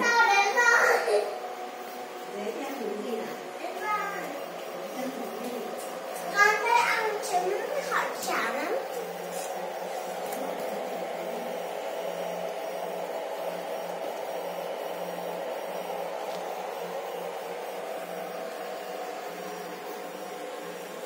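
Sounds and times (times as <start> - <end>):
electric fan whirring: 0.0 - 21.0
low hum: 4.3 - 21.0.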